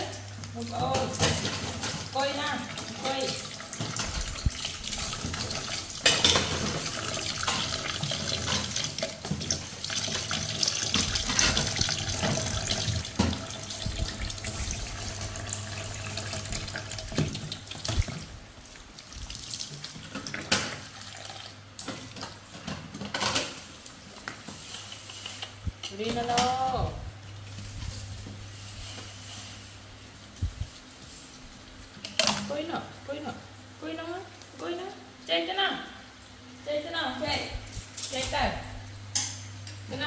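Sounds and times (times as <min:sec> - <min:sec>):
sharp knocks from washing dishes: 0:05.2 - 0:09.6.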